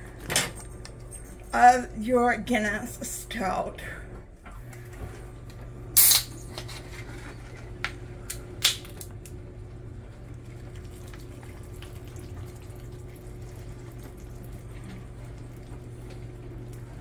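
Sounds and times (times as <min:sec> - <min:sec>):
can cracked open: 0:06.0 - 0:06.3.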